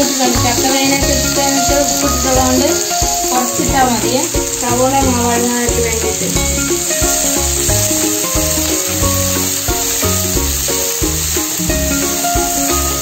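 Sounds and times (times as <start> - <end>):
music with bass beat: 0.0 - 13.0
onions sizzling in oil: 0.0 - 13.0.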